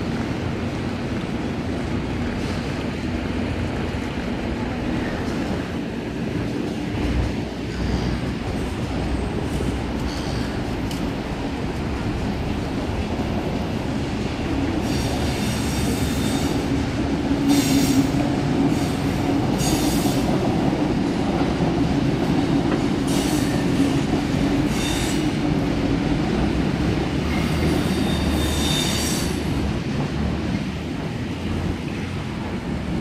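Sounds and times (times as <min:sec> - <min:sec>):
electric train rumbling: 0:00.0 - 0:33.0
train wheels squealing: 0:07.6 - 0:10.8, 0:14.8 - 0:16.8, 0:17.4 - 0:20.3, 0:22.8 - 0:24.0, 0:24.6 - 0:25.5, 0:27.2 - 0:29.6.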